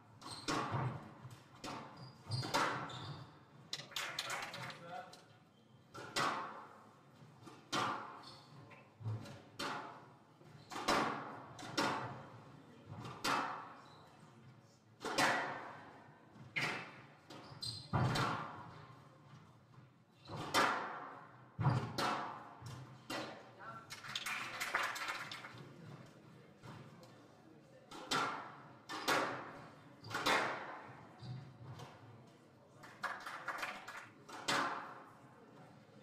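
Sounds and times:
squash ball impacts: 0:20.3 - 0:23.4, 0:27.9 - 0:30.8.

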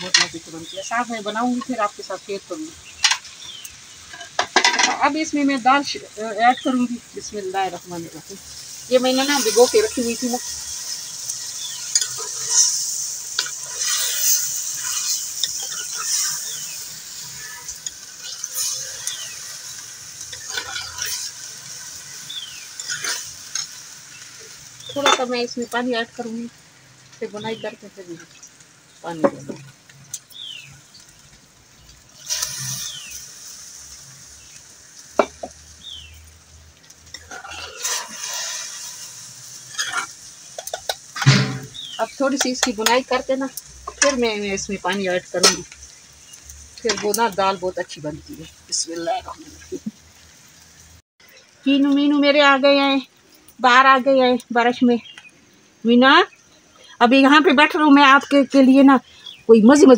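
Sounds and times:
lentils sizzling in hot oil: 0:00.0 - 0:59.9
spoon scraping a clay pot: 0:39.7 - 0:41.0.

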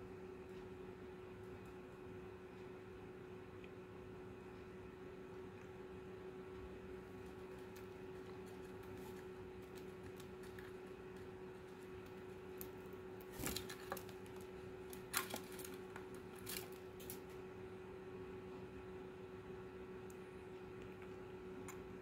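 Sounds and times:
faint steady hum: 0:00.0 - 0:22.0
wings fluttering: 0:07.2 - 0:17.3.

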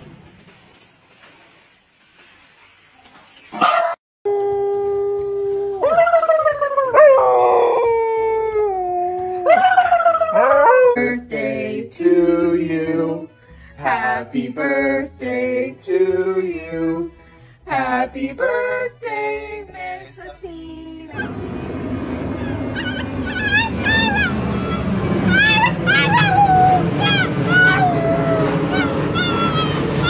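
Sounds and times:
dogs howling: 0:03.8 - 0:11.3, 0:21.1 - 0:30.0.

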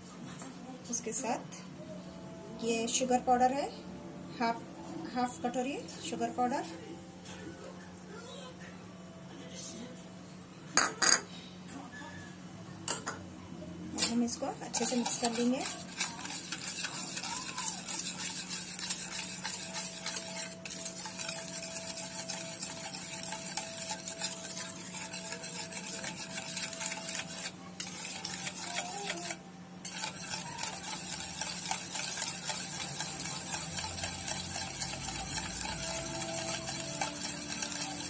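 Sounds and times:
whisk beating cream in bowl: 0:14.0 - 0:38.0.

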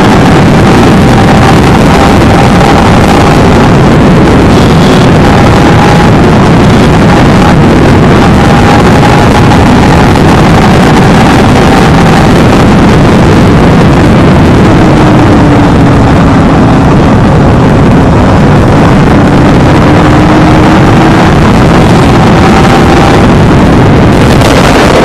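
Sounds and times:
heavy wind on microphone: 0:00.0 - 0:25.0
motorcycle engine whine: 0:00.0 - 0:25.0.

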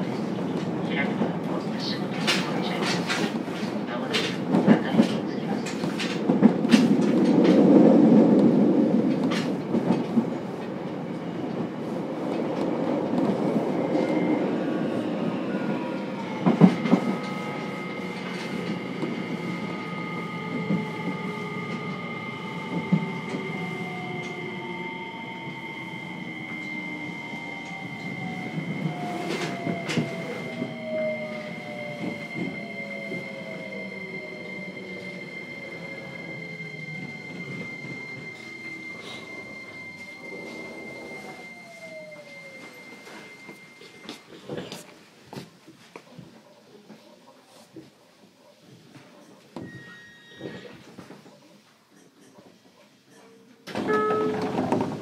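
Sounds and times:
train wheel and rail rumble: 0:00.0 - 0:55.0
electric train motors whining: 0:13.8 - 0:44.1
steady high tone: 0:13.8 - 0:44.4.

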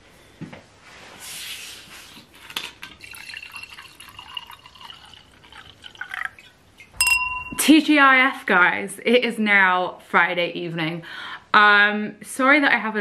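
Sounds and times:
liquid pouring into glass: 0:02.8 - 0:07.6.

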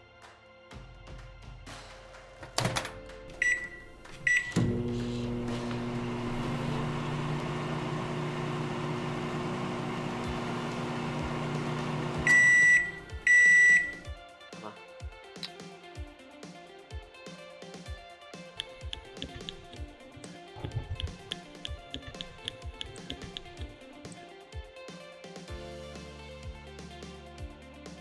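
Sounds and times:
oven button beeps: 0:03.4 - 0:04.9, 0:12.2 - 0:14.1
long oven beeps: 0:03.4 - 0:05.0, 0:12.2 - 0:14.1
oven humming: 0:03.4 - 0:14.1.

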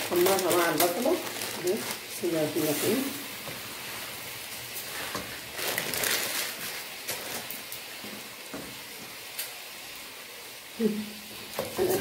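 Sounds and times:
noodles sizzling in hot oil: 0:00.0 - 0:12.0.

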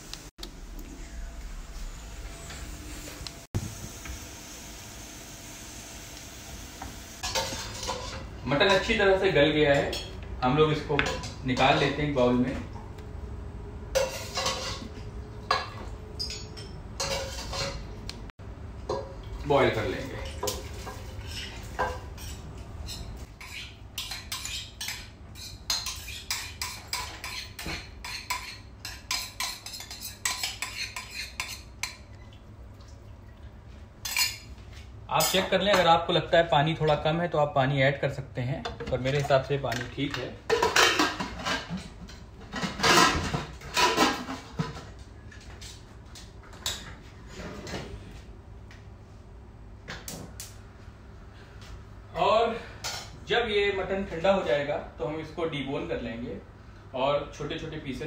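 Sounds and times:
metal pot clattering and scraping: 0:07.2 - 0:09.0, 0:13.9 - 0:17.9, 0:20.2 - 0:32.1, 0:40.4 - 0:45.0
metal spoon scraping steel bowl: 0:22.2 - 0:31.7.

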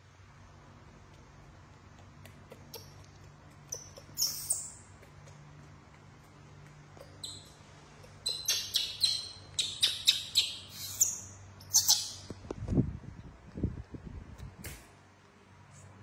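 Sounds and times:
baby monkey squealing: 0:02.5 - 0:04.9, 0:07.0 - 0:12.2.

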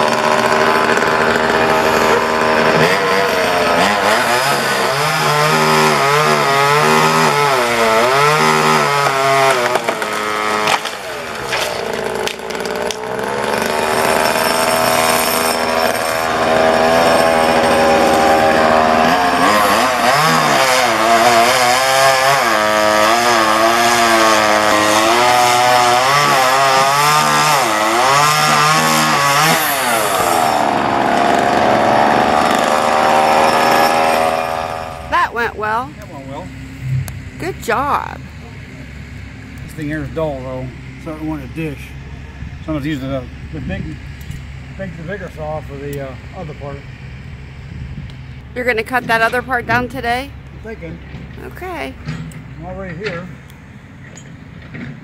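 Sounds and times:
chainsaw revving while cutting: 0:00.0 - 0:35.7.

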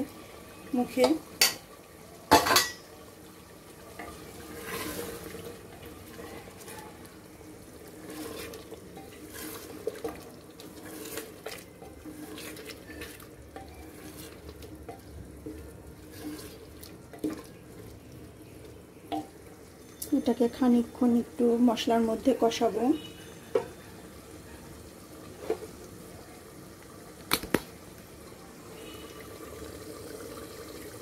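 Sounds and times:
wet squelching stir: 0:04.0 - 0:07.2, 0:07.8 - 0:18.8.

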